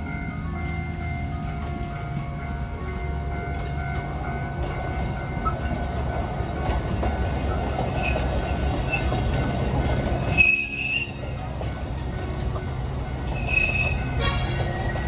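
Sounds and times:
train carriages rumbling: 0:00.0 - 0:15.0
high-pitched wheel squeal: 0:10.3 - 0:11.2, 0:12.7 - 0:15.0.

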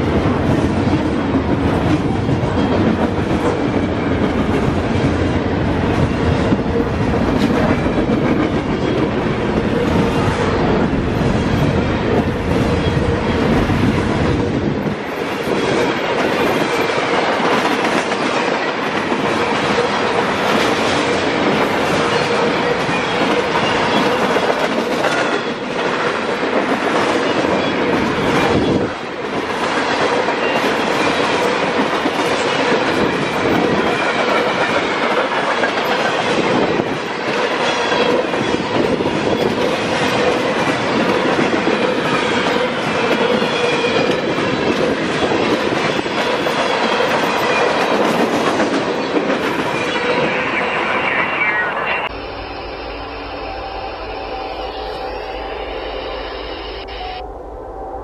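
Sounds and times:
rhythmic clickety-clack: 0:00.0 - 0:50.3
train wheels rumbling on rail: 0:00.0 - 0:51.2
steady tone: 0:50.7 - 0:58.0.

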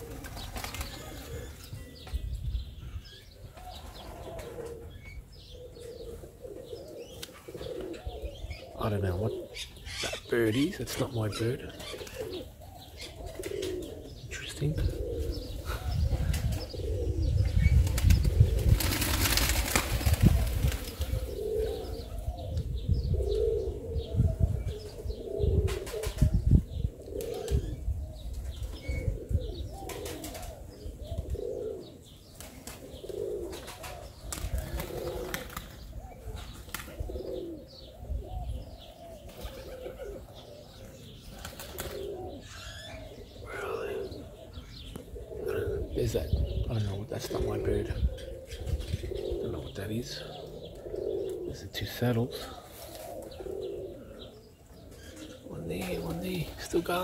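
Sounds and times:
wings flapping: 0:00.0 - 0:01.4, 0:17.8 - 0:21.3, 0:33.5 - 0:35.8, 0:36.5 - 0:37.0, 0:41.4 - 0:42.1
pigeons cooing: 0:00.0 - 0:57.0.

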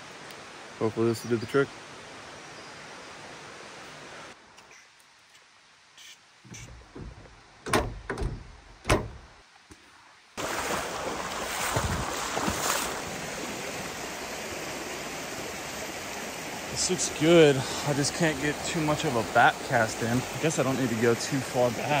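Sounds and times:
knocks and thumps: 0:06.5 - 0:09.3
creek flowing over stones: 0:10.3 - 0:22.0.

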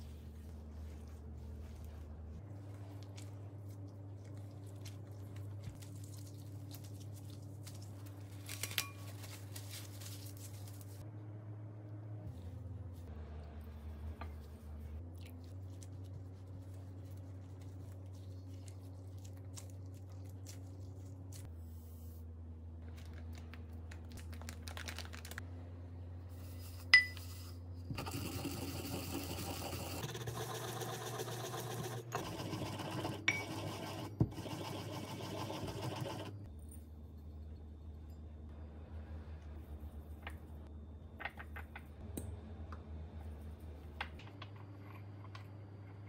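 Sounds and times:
clink on ceramic: 0:27.0 - 0:27.3.

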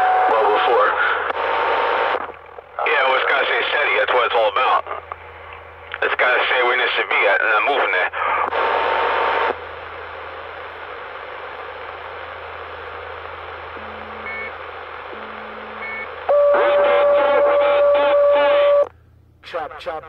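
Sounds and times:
radio static hiss: 0:00.0 - 0:18.9
steady radio tone: 0:00.0 - 0:18.9
steady low hum: 0:00.0 - 0:20.0
short beeps: 0:13.8 - 0:14.6, 0:15.2 - 0:18.9.

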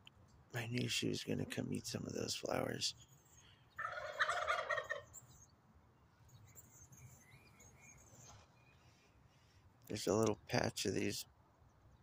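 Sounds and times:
turkey gobbling: 0:03.8 - 0:05.2.

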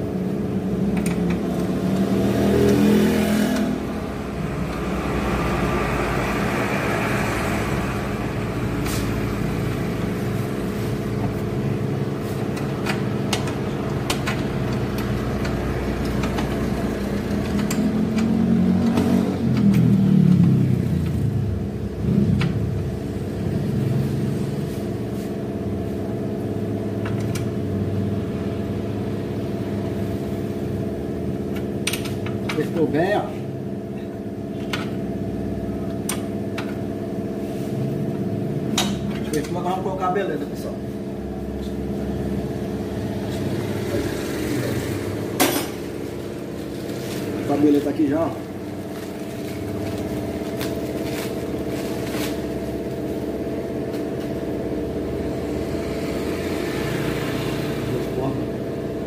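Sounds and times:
hand tools clicking and clanking: 0:12.4 - 0:19.9.

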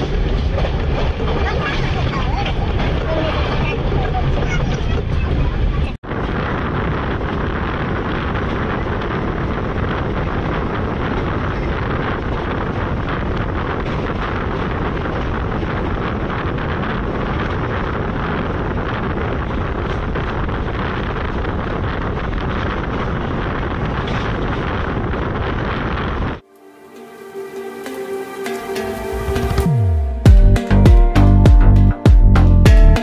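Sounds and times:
express train running: 0:00.0 - 0:18.2
wind buffeting microphone: 0:00.0 - 0:27.1.

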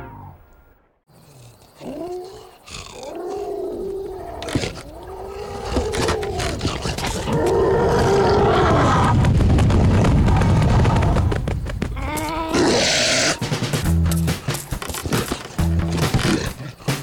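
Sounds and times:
cartoon lion grunts and groans: 0:01.2 - 0:08.4
heavy animal footfalls rumbling: 0:05.6 - 0:16.5.

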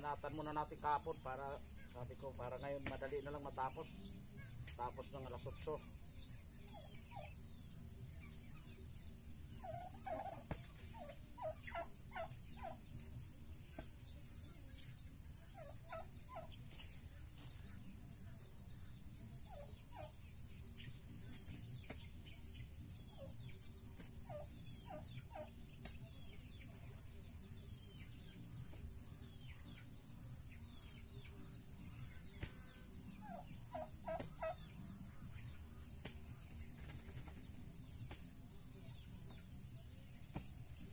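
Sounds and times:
faint high bird chirps: 0:00.0 - 0:40.9
high insect drone: 0:00.0 - 0:40.9
turkeys calling: 0:06.5 - 0:07.4, 0:09.4 - 0:16.9, 0:19.4 - 0:22.4, 0:23.0 - 0:27.1, 0:30.7 - 0:37.5.

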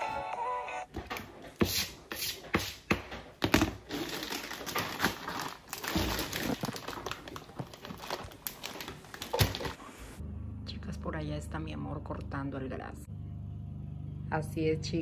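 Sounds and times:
plastic bags crinkling: 0:03.5 - 0:09.8.

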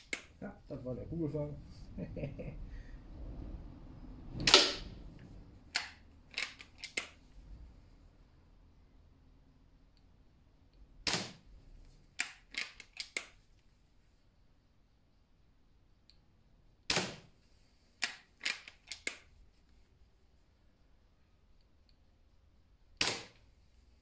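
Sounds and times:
sharp clicks: 0:00.0 - 0:00.5, 0:05.7 - 0:07.2, 0:12.2 - 0:13.4, 0:18.0 - 0:19.3
air rifle shots with echo: 0:04.4 - 0:04.9, 0:16.9 - 0:17.3, 0:23.0 - 0:23.4.

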